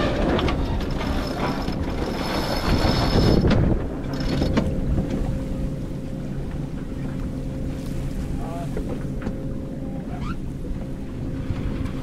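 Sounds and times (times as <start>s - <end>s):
water rushing along hull: 0.0s - 12.0s
wind buffeting microphone: 0.0s - 12.0s
faint steady hum: 3.8s - 12.0s.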